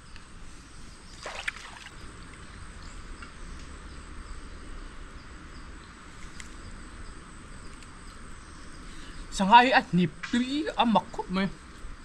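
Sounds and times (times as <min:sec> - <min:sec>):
water lapping and trickling: 0:01.0 - 0:02.5
water splashing around kayak: 0:01.1 - 0:02.1.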